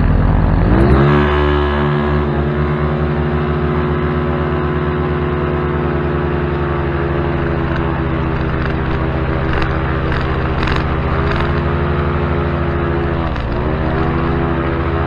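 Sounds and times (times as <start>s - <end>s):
paramotor engine and propeller: 0.0s - 15.0s
sharp clicks: 13.0s - 14.4s.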